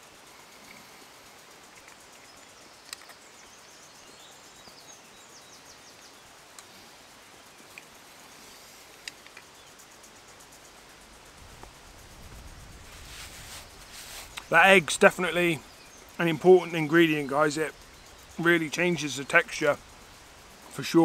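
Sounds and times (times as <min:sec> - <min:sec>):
distant birds chirping: 0:00.0 - 0:21.0
faint steady hiss: 0:00.0 - 0:21.0
small clicks: 0:01.7 - 0:03.2, 0:09.0 - 0:09.6.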